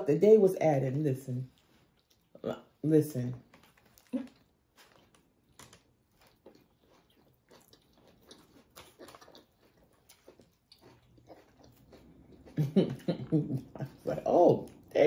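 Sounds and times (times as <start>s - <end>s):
chewing mouth clicks and smacks: 1.5s - 2.4s, 3.6s - 13.9s.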